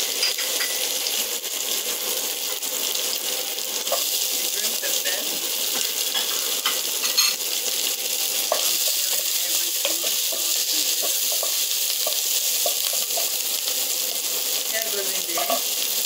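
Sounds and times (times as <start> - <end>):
vegetables sizzling in oil: 0.0 - 16.0.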